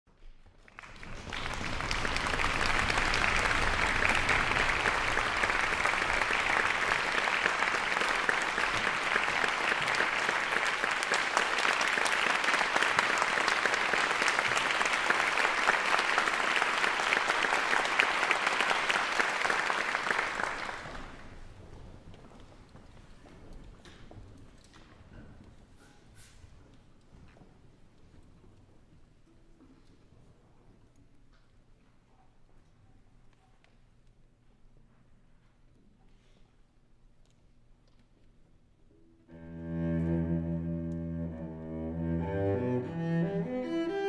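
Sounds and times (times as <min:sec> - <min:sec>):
audience applauding: 0:00.6 - 0:21.5.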